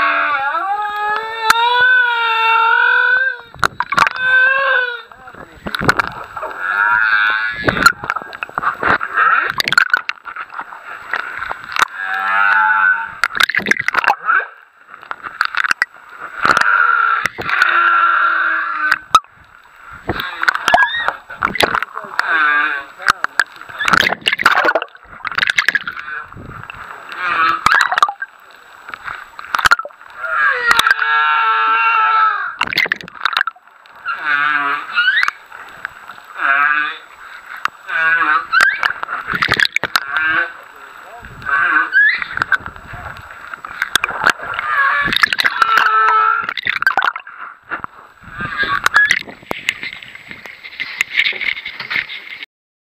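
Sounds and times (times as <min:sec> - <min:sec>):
whale song underwater: 0:00.0 - 0:05.2, 0:11.7 - 0:14.6, 0:15.6 - 0:19.4, 0:20.1 - 0:22.9, 0:23.7 - 0:28.4, 0:29.6 - 0:35.7, 0:36.3 - 0:40.6, 0:41.4 - 0:47.6, 0:48.2 - 0:49.3
clicks and pops: 0:03.6 - 0:04.2, 0:05.6 - 0:06.6, 0:07.6 - 0:12.0, 0:13.2 - 0:14.2, 0:15.0 - 0:17.7, 0:18.9 - 0:22.3, 0:23.0 - 0:26.8, 0:27.4 - 0:30.1, 0:32.6 - 0:34.0, 0:38.5 - 0:40.2, 0:42.1 - 0:48.0, 0:48.6 - 0:51.2.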